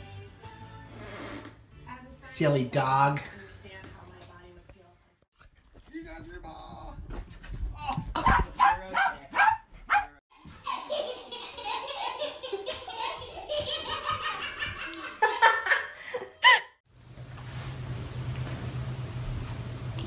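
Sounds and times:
small dog barking: 8.2s - 10.2s.

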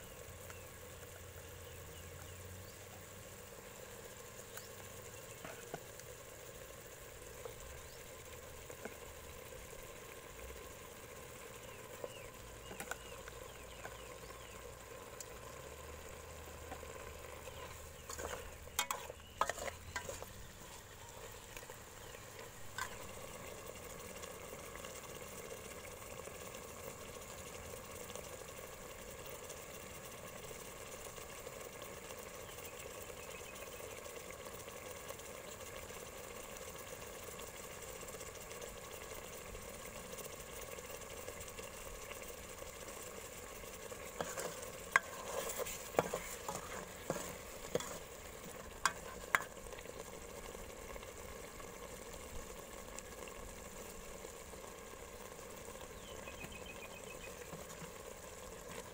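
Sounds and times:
broth simmering in a pot: 0.0s - 58.9s
metal ladle scraping a pot: 17.4s - 20.9s, 44.0s - 49.5s.

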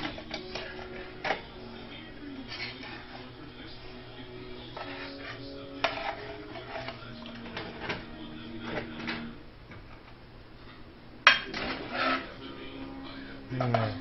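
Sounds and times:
metal utensil scraping a pot: 2.4s - 3.3s, 4.7s - 8.0s, 11.5s - 12.4s.

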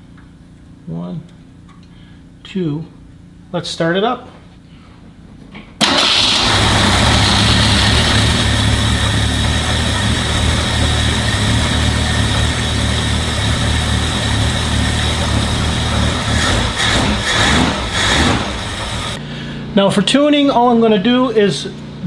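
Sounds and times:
car engine idling: 5.8s - 19.2s.

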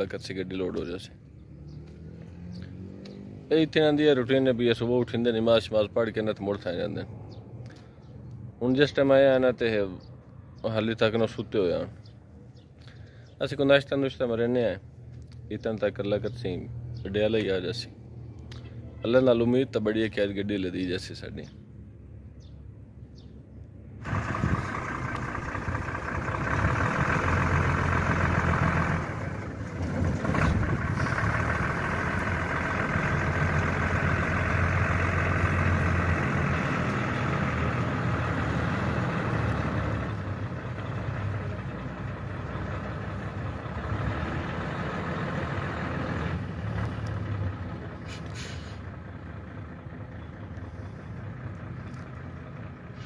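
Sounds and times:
diesel truck engine driving off: 0.0s - 7.9s, 24.0s - 53.0s.

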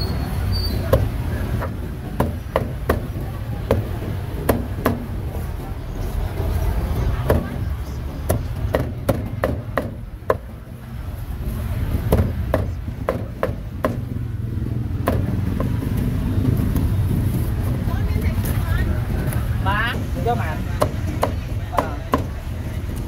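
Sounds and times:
steady low rumble: 10.0s - 21.7s.

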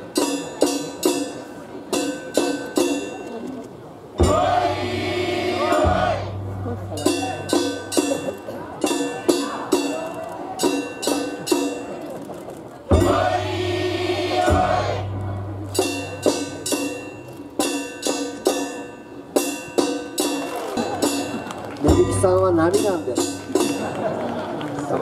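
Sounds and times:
metallic percussion strikes: 0.0s - 12.1s, 12.9s - 24.2s.

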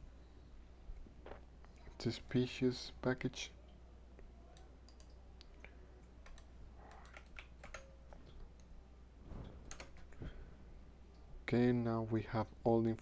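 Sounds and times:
keyboard keystrokes: 6.2s - 7.9s, 9.7s - 10.1s.

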